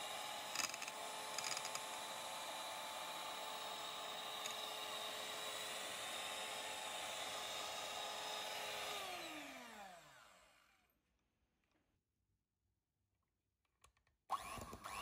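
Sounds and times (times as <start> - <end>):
electric hand mixer whining: 0.0 - 10.9, 14.3 - 15.0.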